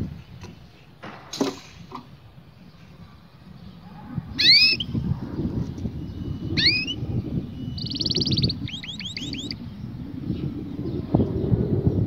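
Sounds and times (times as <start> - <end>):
low rumble: 2.2 - 12.0
canary singing: 3.6 - 9.8.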